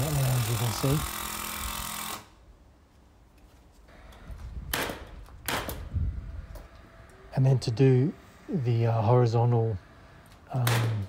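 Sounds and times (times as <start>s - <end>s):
nail gun firing: 0.0s - 2.3s, 4.7s - 5.9s, 10.6s - 11.0s
cordless drill running: 0.0s - 2.4s.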